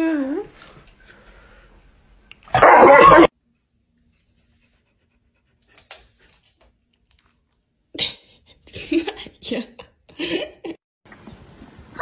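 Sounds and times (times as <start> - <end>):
dog barking harshly: 2.5 - 3.3.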